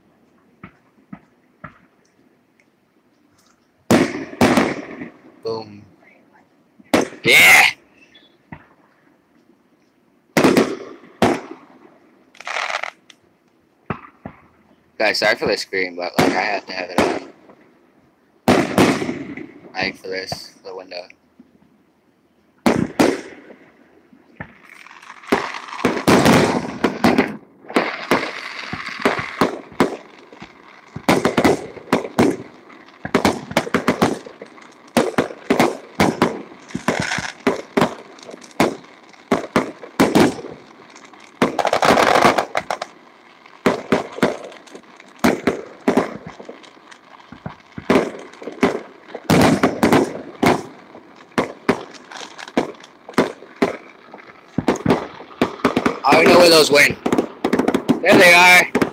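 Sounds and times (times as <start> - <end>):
fireworks crackle: 3.3 - 6.0, 6.8 - 8.8, 10.3 - 17.8, 18.4 - 21.2, 22.6 - 58.9
fireworks bursting: 3.4 - 6.0, 6.8 - 8.8, 10.3 - 13.2, 13.8 - 17.8, 18.4 - 21.1, 22.6 - 58.9.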